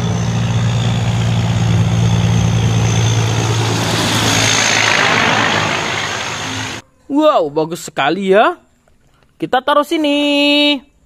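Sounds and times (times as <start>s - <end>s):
truck diesel engine running: 0.0s - 6.8s.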